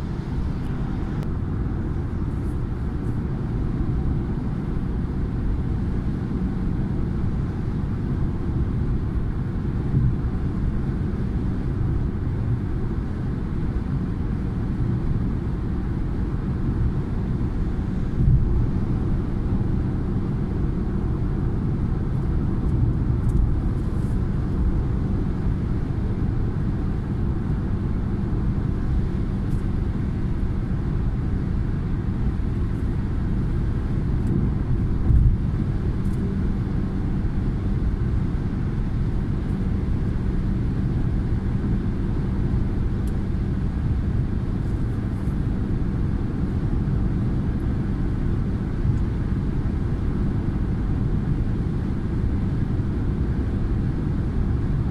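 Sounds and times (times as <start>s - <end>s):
car road and engine noise: 0.0s - 54.9s.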